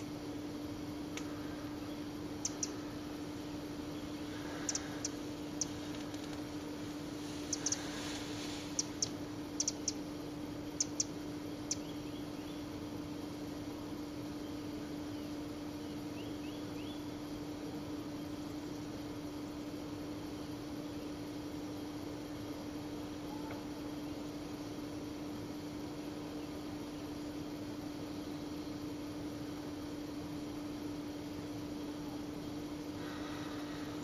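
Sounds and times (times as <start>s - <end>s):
low hum and hiss: 0.0s - 34.0s
faint chirps: 0.9s - 12.8s
sharp high-pitched ticks: 2.4s - 2.8s, 4.6s - 5.8s, 7.5s - 7.8s, 8.8s - 10.0s, 10.8s - 11.8s.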